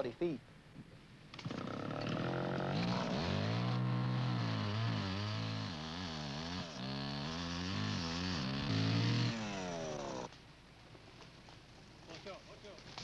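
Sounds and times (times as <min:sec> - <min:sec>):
chainsaw cutting wood: 0:01.4 - 0:10.3.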